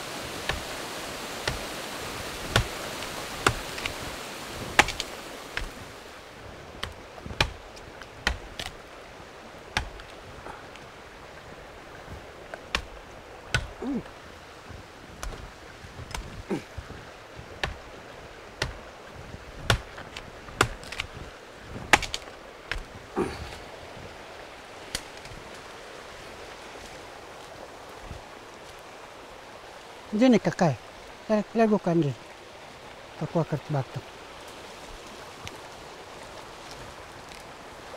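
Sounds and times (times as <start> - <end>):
vines snapping and breaking: 2.4 - 4.1, 4.7 - 5.9, 6.8 - 8.8, 19.6 - 21.2, 21.9 - 23.6, 24.9 - 25.5.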